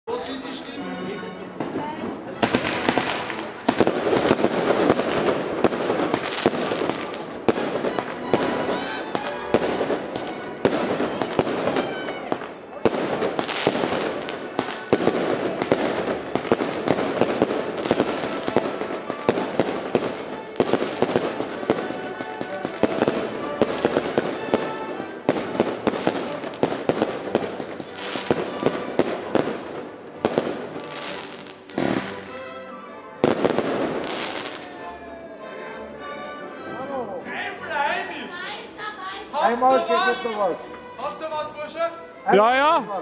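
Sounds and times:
fireworks bangs and crackling: 0:01.6 - 0:32.4, 0:33.2 - 0:34.8.

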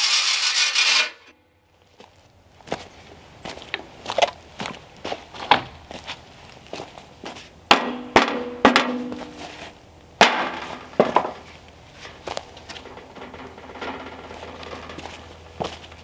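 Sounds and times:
metallic knocks on metal pipe: 0:07.7 - 0:09.3.

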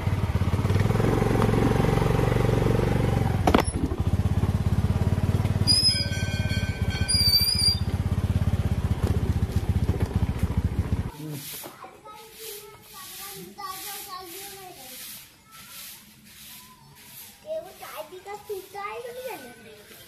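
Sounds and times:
motor scooter engine running: 0:00.0 - 0:11.2.

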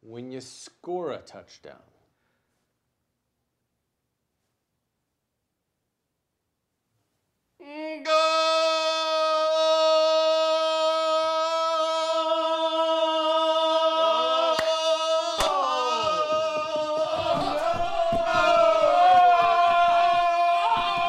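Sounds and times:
man yelling: 0:07.6 - 0:21.0
voices: 0:07.6 - 0:21.0.

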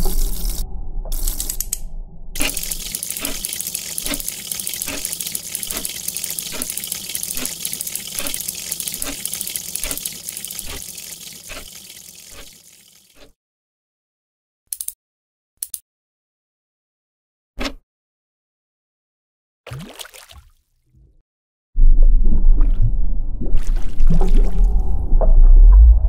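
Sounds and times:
running water rushing: 0:02.4 - 0:13.2.

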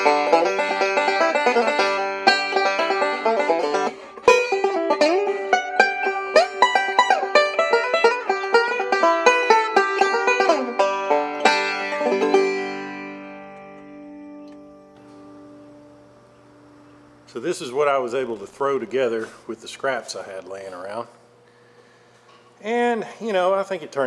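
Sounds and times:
plucked-string background music: 0:00.0 - 0:15.8.

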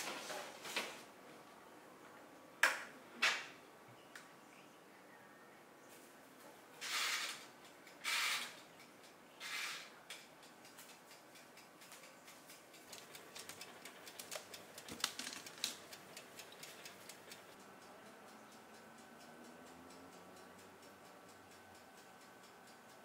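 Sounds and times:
timer knob being turned: 0:06.8 - 0:17.6
timer ticking rapidly: 0:10.2 - 0:23.0.

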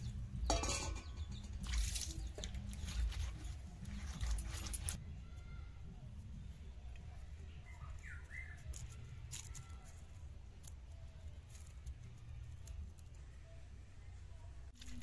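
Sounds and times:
papery skins peeled by hand: 0:01.6 - 0:05.0, 0:07.8 - 0:13.2.

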